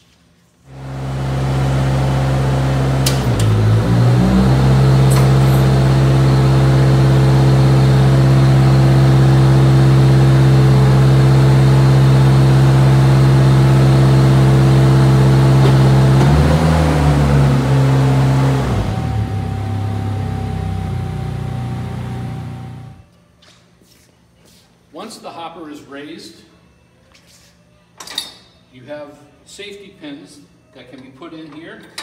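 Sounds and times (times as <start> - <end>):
engine running steadily: 0.7 - 23.0
hydraulics raising hopper: 0.8 - 23.0.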